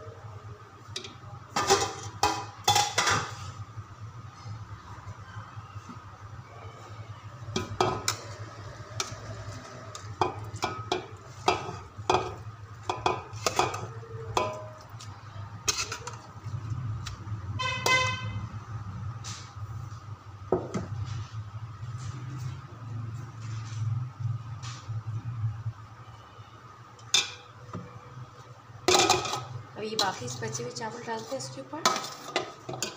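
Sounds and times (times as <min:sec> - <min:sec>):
metal spoon clinking on pot: 0:10.2 - 0:15.0.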